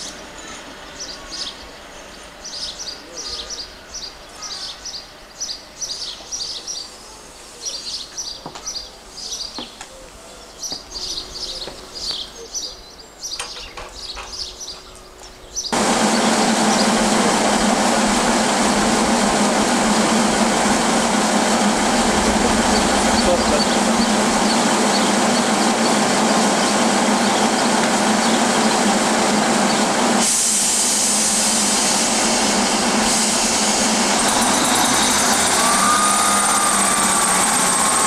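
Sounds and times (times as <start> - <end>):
songbirds chirping: 0.0 - 15.8
loud mechanical drone: 15.7 - 38.0.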